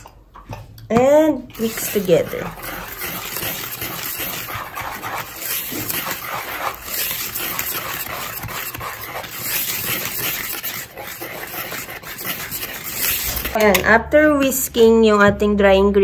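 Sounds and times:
whisk swishing in plastic bowl: 1.3s - 13.8s.

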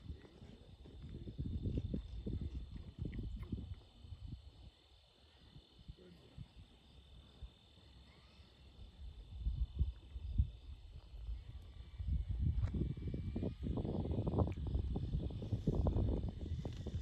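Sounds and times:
wind buffeting microphone: 0.0s - 4.7s, 9.2s - 17.0s
insects droning: 0.0s - 17.0s.

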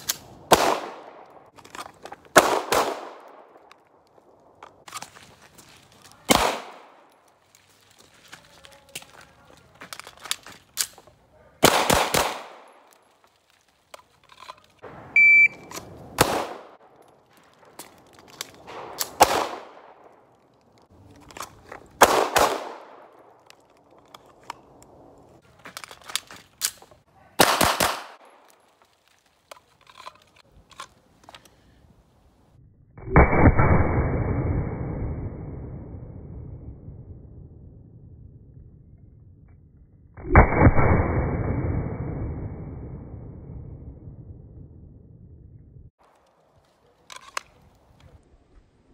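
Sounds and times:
pistol shots: 0.0s - 1.5s, 2.3s - 3.6s, 6.3s - 7.0s, 11.6s - 12.9s, 16.2s - 17.0s, 18.6s - 20.2s, 22.0s - 23.2s, 27.4s - 28.4s
muffled low boom: 32.7s - 39.8s, 40.6s - 45.9s.

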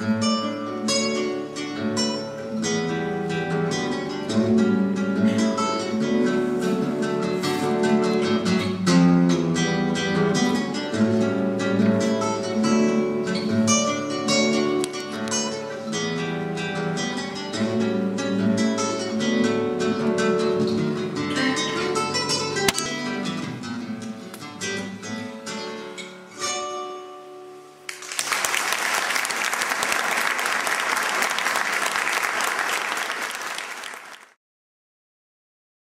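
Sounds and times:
solo classical guitar: 0.0s - 28.0s
audience applauding: 27.9s - 34.4s.

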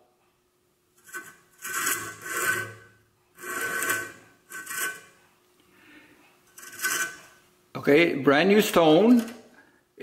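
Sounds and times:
grinding wheel scraping wood: 1.0s - 5.2s, 6.5s - 7.4s.

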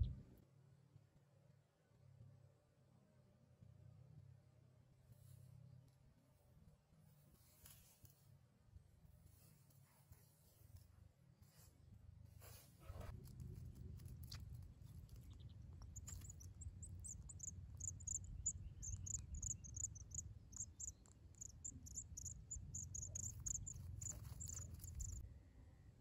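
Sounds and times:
low steady rumble: 0.0s - 0.4s, 11.8s - 26.0s
nestlings begging cheeps: 14.0s - 25.2s.

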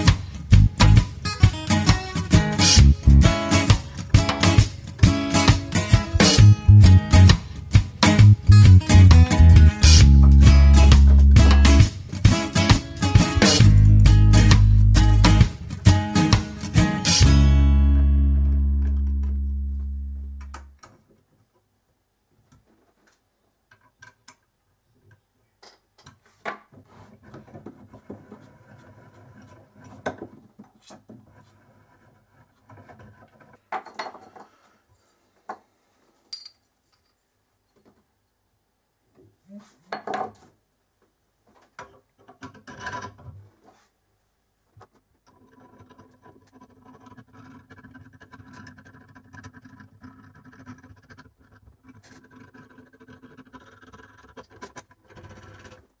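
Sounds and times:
metal scraping and rubbing: 0.0s - 17.5s, 26.8s - 33.7s, 45.3s - 55.9s
metal clinking on metal: 36.3s - 37.2s.

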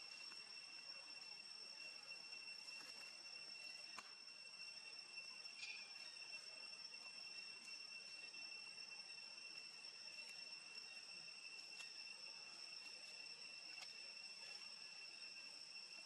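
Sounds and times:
high-pitched insect drone: 0.0s - 16.0s
faint ticks: 13.7s - 14.0s.

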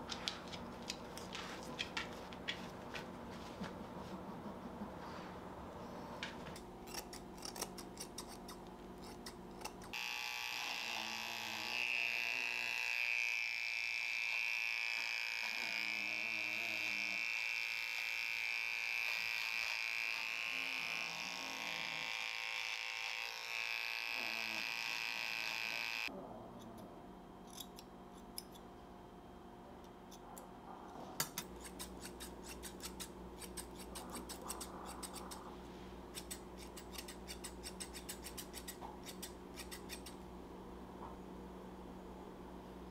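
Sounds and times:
scissors snipping: 6.6s - 10.0s, 31.2s - 35.4s, 36.1s - 40.2s
electric trimmer whining: 9.9s - 26.1s.

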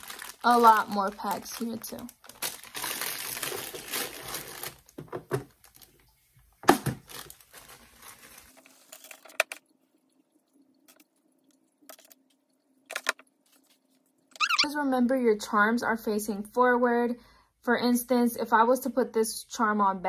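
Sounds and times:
plastic bags crinkling: 0.0s - 9.3s.

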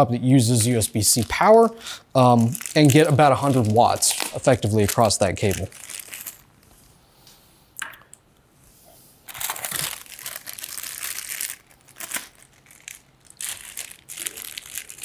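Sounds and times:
plastic bag crinkling: 0.4s - 6.6s, 9.3s - 15.0s.

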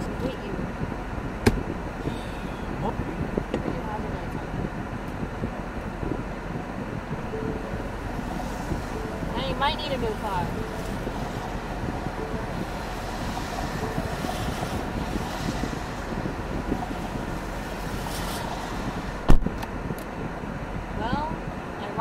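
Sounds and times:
car cabin noise: 0.0s - 22.0s
sharp thump: 1.4s - 1.7s, 19.3s - 19.5s
tyres hissing on wet road: 8.2s - 11.7s, 12.6s - 19.3s.

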